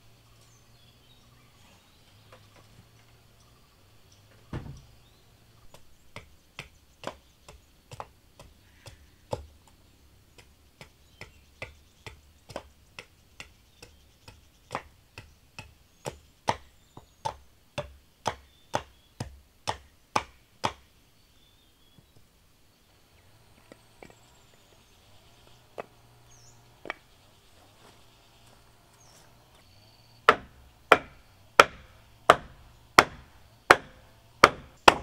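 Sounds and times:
tool knocking on wood: 4.5s - 4.8s, 10.3s - 20.8s, 30.3s - 35.0s.

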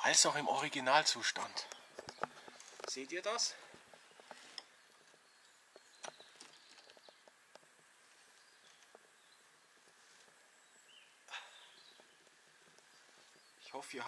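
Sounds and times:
faint outdoor ambience: 0.0s - 14.0s
small clicks and taps: 1.7s - 3.0s.

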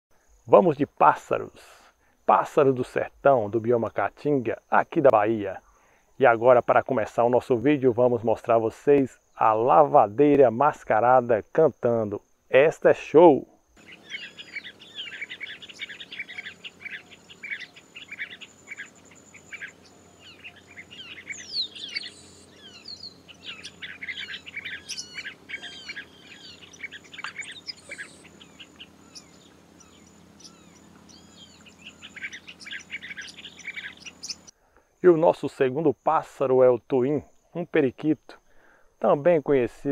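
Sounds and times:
birds chirping sharply: 13.8s - 34.5s
sweeping whistled bird notes: 13.8s - 34.5s.

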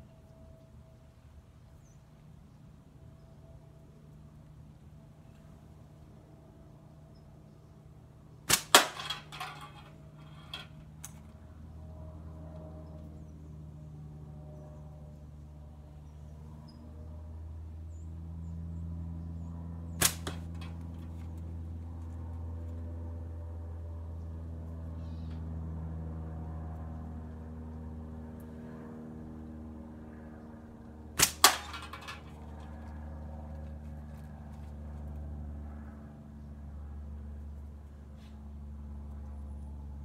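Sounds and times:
steel ball knocking target: 8.5s - 10.7s, 20.0s - 20.8s, 31.2s - 32.4s
slingshot bands snapping: 8.5s - 11.2s, 20.0s - 21.0s, 31.2s - 32.4s.

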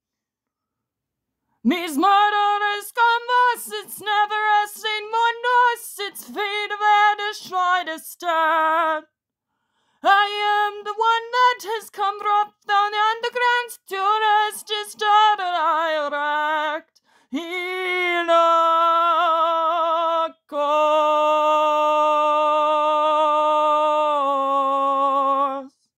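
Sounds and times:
woman singing a cappella: 1.6s - 9.2s, 10.0s - 26.0s.

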